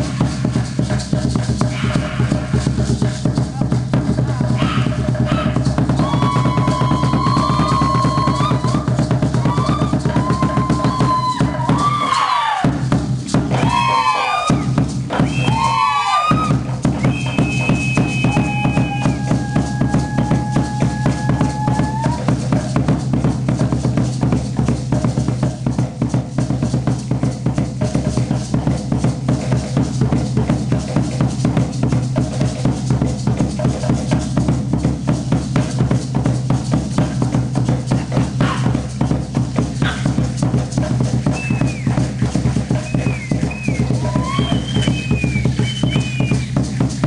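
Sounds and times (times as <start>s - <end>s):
fast drumming: 0.0s - 47.0s
shrill whistled cries: 13.6s - 22.2s, 41.3s - 42.0s, 42.8s - 46.6s
long high whistle tones: 16.4s - 22.1s, 41.4s - 42.0s, 42.8s - 46.5s.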